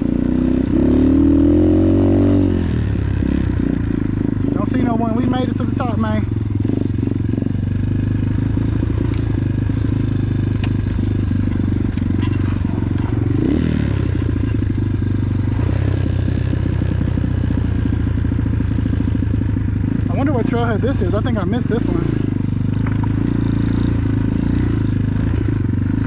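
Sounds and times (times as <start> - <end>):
dirt bike engine running: 0.0 - 26.0
sharp clicks and rattles: 10.5 - 13.3.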